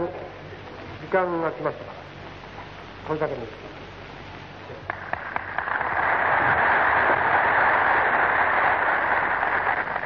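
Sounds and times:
audience applauding: 0:04.9 - 0:10.0.

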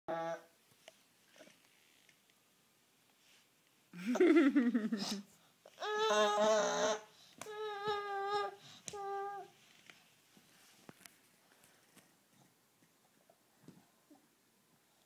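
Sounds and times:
baby whining and vocalizing: 0:05.1 - 0:09.6.

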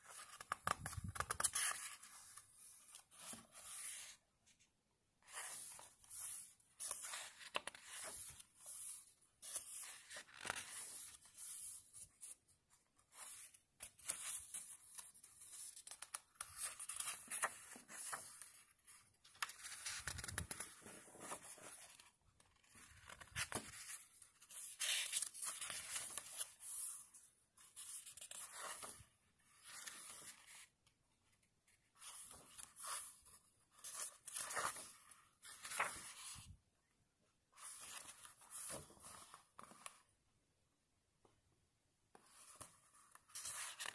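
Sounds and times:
paper pages turning: 0:00.1 - 0:04.2, 0:05.2 - 0:12.4, 0:13.0 - 0:30.7, 0:32.0 - 0:36.5, 0:37.6 - 0:40.0, 0:42.2 - 0:43.9.

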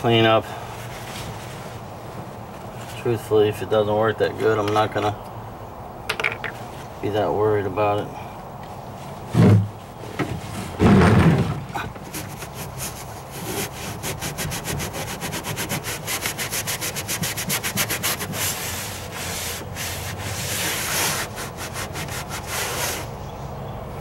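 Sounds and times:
paper towel scrubbing surface: 0:12.1 - 0:23.2.

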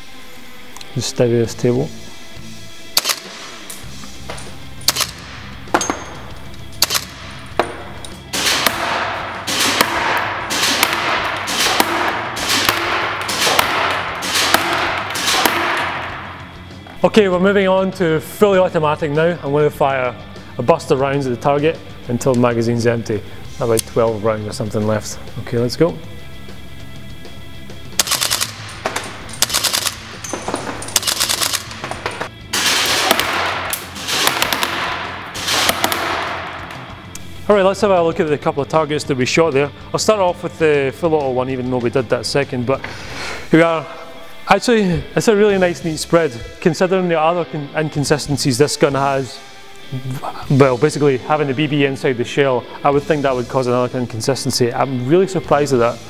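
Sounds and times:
airsoft rifle shots: 0:03.0 - 0:03.7, 0:04.9 - 0:06.2, 0:06.8 - 0:16.6, 0:28.0 - 0:37.1
airsoft rifle bursts of sharp clacks: 0:28.0 - 0:28.7, 0:29.4 - 0:30.2, 0:31.0 - 0:31.9.

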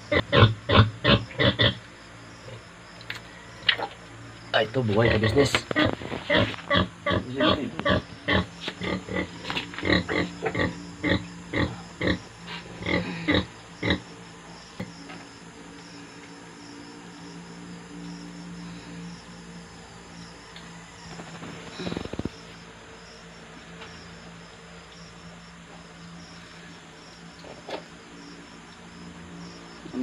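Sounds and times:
pig grunting: 0:00.0 - 0:01.8, 0:05.0 - 0:14.1
faint steady hum: 0:00.0 - 0:30.0.

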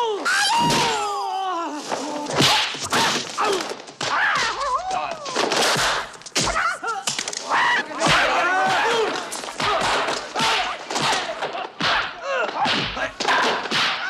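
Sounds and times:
shrill fighting yells: 0:00.0 - 0:01.8, 0:06.5 - 0:14.0
punch and kick impacts: 0:08.1 - 0:14.0.

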